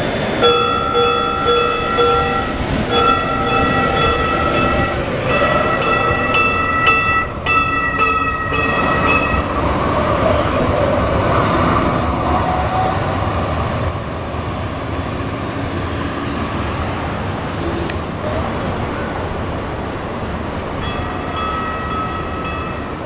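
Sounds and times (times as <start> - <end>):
city street noise: 0.0 - 23.0
train cars rumbling: 0.0 - 23.0
train bell dinging: 0.4 - 9.8, 20.5 - 23.0.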